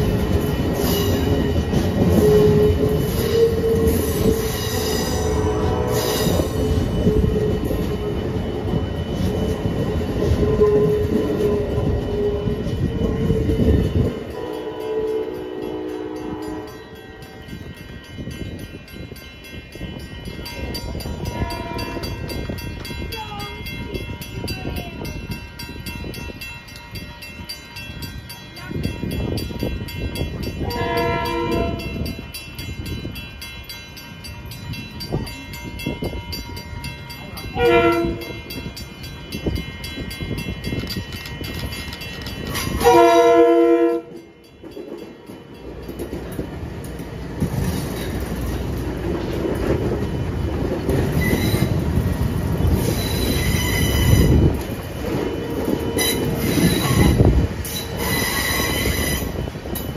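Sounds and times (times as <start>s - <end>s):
train wheels rumbling on rails: 0.0s - 59.9s
train horn blasts: 2.2s - 7.6s, 10.4s - 12.5s, 14.3s - 17.4s, 21.2s - 22.2s, 30.6s - 32.2s, 37.6s - 38.4s, 42.7s - 44.2s.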